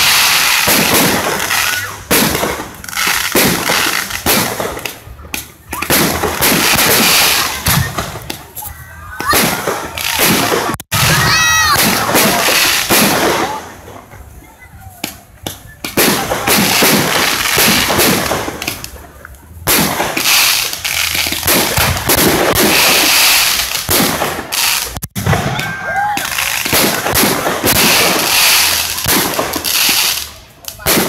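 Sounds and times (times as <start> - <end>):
fireworks bangs and crackling: 0.0 - 31.0.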